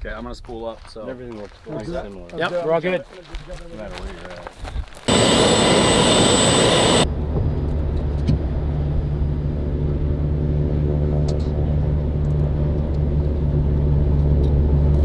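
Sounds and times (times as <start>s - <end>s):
helicopter turbine whine: 5.1s - 7.3s.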